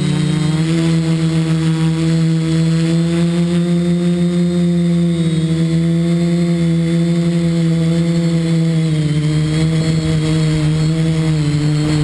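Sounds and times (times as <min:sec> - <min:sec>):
drone motors and propellers humming: 0:00.0 - 0:12.0.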